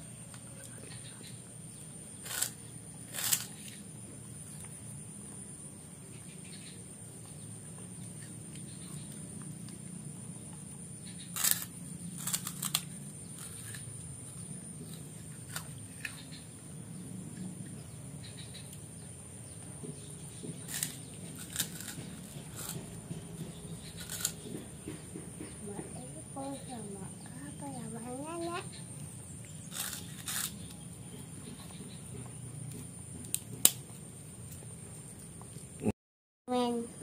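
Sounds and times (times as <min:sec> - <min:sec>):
low background hum: 0:00.0 - 0:35.9
child crunching a cracker: 0:02.2 - 0:03.8, 0:11.4 - 0:13.9, 0:14.9 - 0:16.1, 0:20.7 - 0:22.8, 0:24.0 - 0:24.4, 0:29.7 - 0:30.6.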